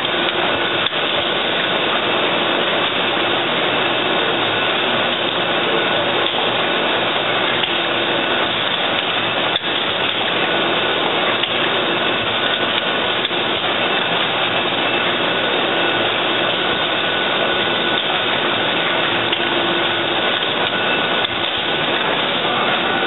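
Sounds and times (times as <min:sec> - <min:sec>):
faint machine whine: 0:00.0 - 0:23.0
machine running: 0:00.0 - 0:23.0.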